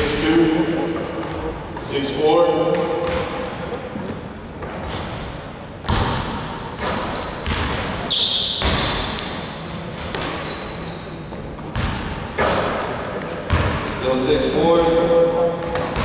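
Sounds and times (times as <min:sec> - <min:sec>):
sneaker squeaks: 0:01.0 - 0:12.0
ball striking rim: 0:02.6 - 0:03.7, 0:05.8 - 0:09.4, 0:11.6 - 0:12.9, 0:13.5 - 0:13.9, 0:15.6 - 0:16.0
basketballs bouncing on hardwood: 0:02.7 - 0:03.6, 0:05.8 - 0:09.4, 0:11.3 - 0:12.7, 0:13.5 - 0:13.9, 0:15.6 - 0:16.0.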